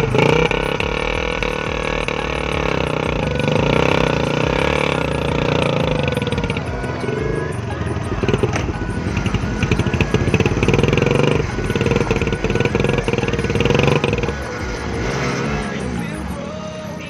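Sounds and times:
background music: 0:00.0 - 0:17.0
motorcycle engines revving: 0:00.0 - 0:17.0.

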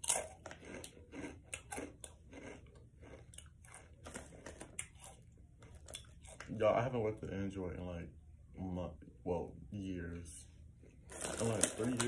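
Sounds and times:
person chewing crunchy snack: 0:00.0 - 0:06.5.

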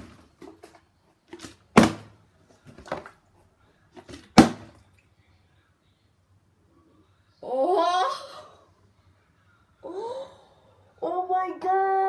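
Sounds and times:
plastic bottle knocking on hard surface: 0:01.4 - 0:02.1, 0:04.0 - 0:04.8.

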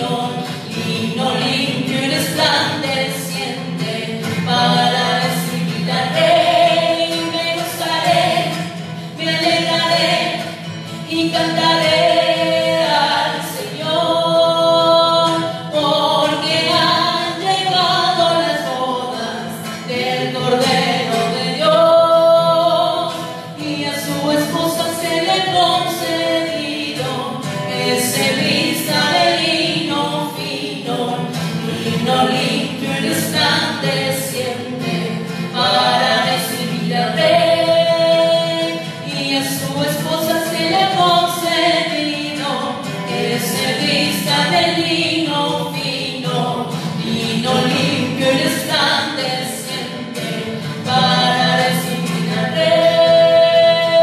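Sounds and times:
strummed acoustic guitar: 0:00.0 - 0:54.0
woman singing into a microphone: 0:00.0 - 0:54.0.

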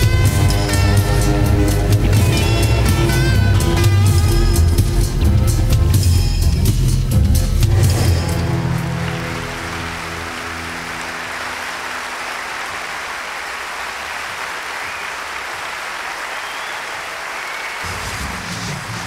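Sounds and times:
audience applause and cheering: 0:07.9 - 0:19.0.

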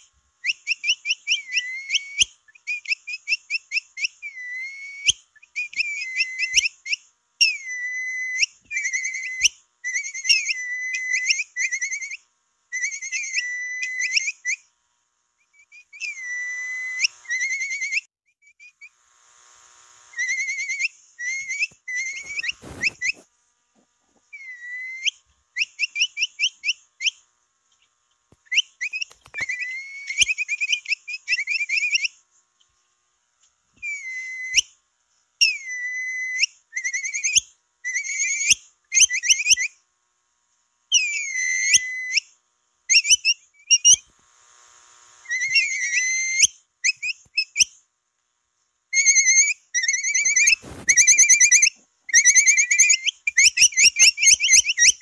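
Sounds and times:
high whistled peeps: 0:00.4 - 0:12.2, 0:12.8 - 0:14.7, 0:15.4 - 0:18.9, 0:20.1 - 0:23.3, 0:24.3 - 0:27.2, 0:28.4 - 0:32.2, 0:33.8 - 0:34.8, 0:35.4 - 0:39.8, 0:40.9 - 0:42.3, 0:42.9 - 0:44.1, 0:45.2 - 0:47.8, 0:49.0 - 0:55.0
brief crackle: 0:28.3 - 0:29.5, 0:50.4 - 0:51.2.

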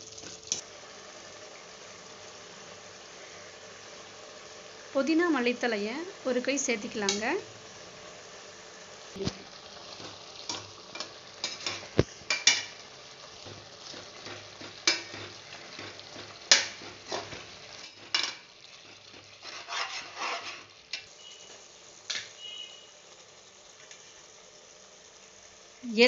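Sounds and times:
masala sizzling in oil: 0:00.0 - 0:26.0
metal skimmer scraping a pot: 0:19.2 - 0:20.7.

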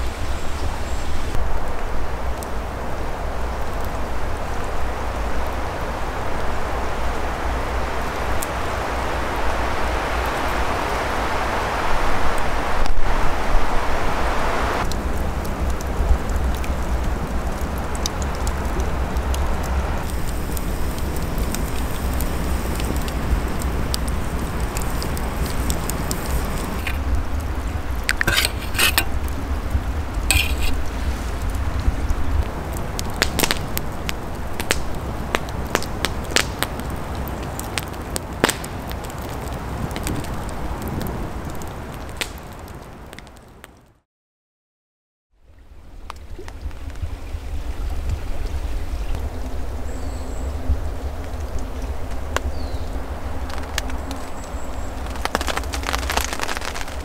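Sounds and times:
campfire crackling and popping: 0:14.8 - 0:43.9, 0:50.8 - 0:57.0.

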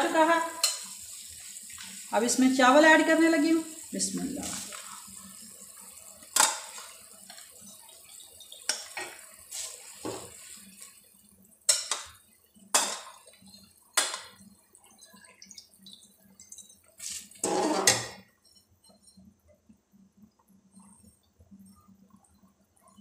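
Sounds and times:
splashing scrape in pot: 0:17.0 - 0:19.2.

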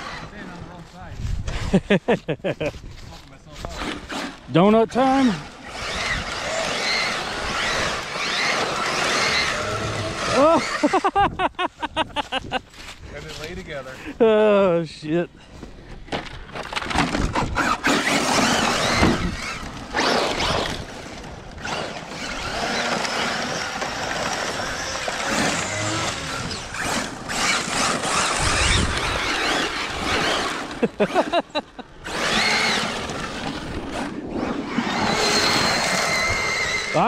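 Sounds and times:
electric motor whining: 0:03.6 - 0:11.1, 0:17.1 - 0:31.4, 0:32.0 - 0:37.0.

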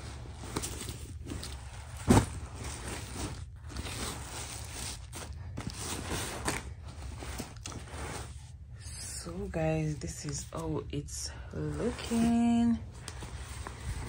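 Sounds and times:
jacket rustling: 0:00.0 - 0:08.6, 0:11.6 - 0:14.0.

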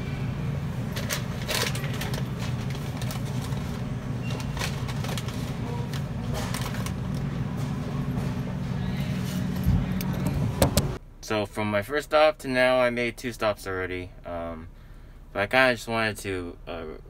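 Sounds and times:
steady low hum: 0:00.0 - 0:17.0
coffee bags rustling and knocking: 0:00.9 - 0:08.4.

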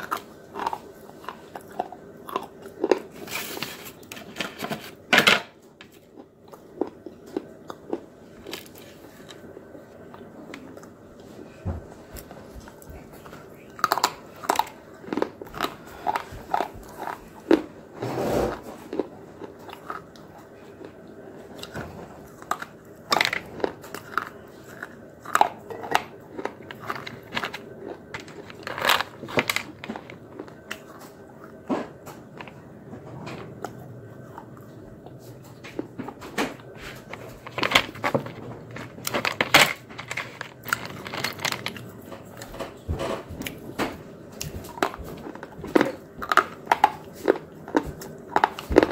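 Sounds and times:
chewing: 0:00.0 - 0:04.3, 0:05.8 - 0:17.8, 0:18.5 - 0:32.7, 0:44.3 - 0:48.9
crunchy snacks snapping: 0:00.0 - 0:04.5, 0:12.6 - 0:17.7, 0:22.4 - 0:31.2.

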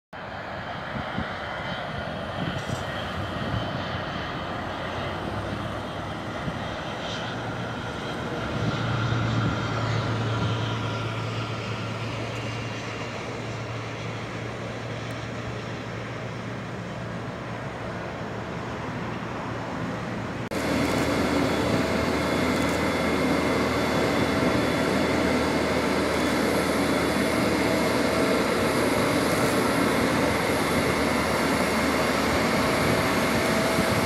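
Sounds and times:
distant jet engines taxiing: 0:00.2 - 0:34.0
low hum: 0:20.4 - 0:34.0.

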